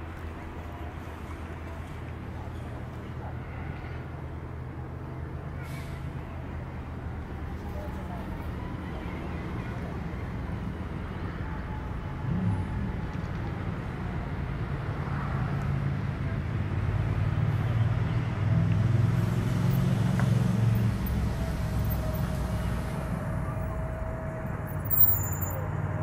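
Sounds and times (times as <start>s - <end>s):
low rumble of motor traffic: 0.0s - 26.0s
faint held tone: 21.8s - 25.7s.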